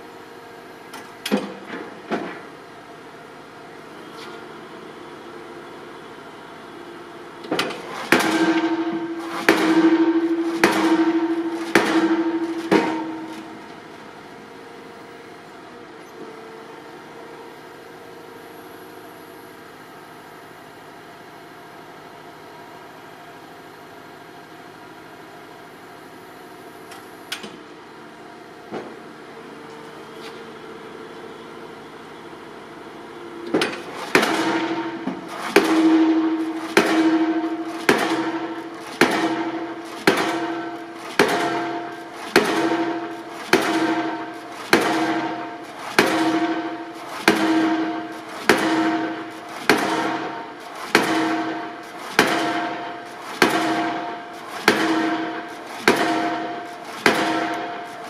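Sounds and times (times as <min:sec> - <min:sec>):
pile-driving rig running: 0:07.4 - 0:15.5, 0:33.4 - 0:58.0
metallic hammer blows: 0:08.0 - 0:13.8, 0:34.0 - 0:57.9.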